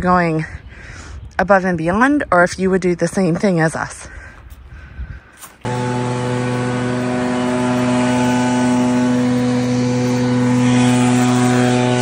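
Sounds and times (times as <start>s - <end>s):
leaf blower running: 5.6s - 12.0s.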